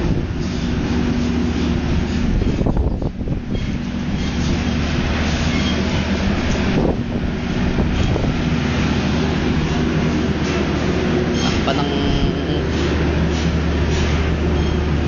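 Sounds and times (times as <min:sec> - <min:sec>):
wind blowing across microphone: 0:00.0 - 0:10.4
constant low hum: 0:00.0 - 0:15.0.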